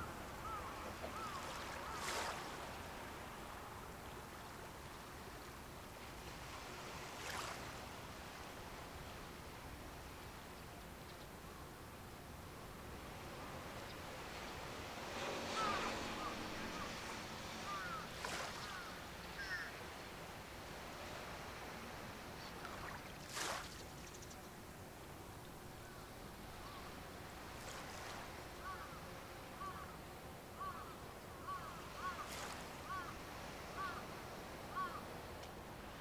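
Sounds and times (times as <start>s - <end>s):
rushing swishes of water: 0.0s - 5.1s, 5.9s - 9.2s, 14.7s - 19.8s, 20.4s - 24.2s, 26.4s - 28.9s, 31.5s - 35.0s
wind and water hiss: 0.0s - 36.0s.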